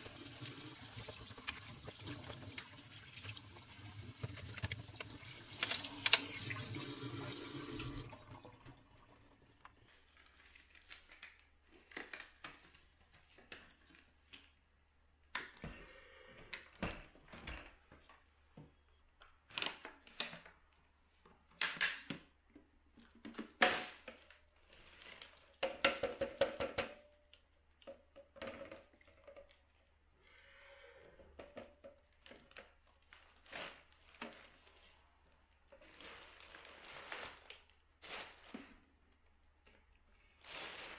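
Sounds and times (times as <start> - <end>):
tap water running into sink: 0.0 - 9.8
plastic clicks and snaps: 19.2 - 20.6, 21.6 - 22.3.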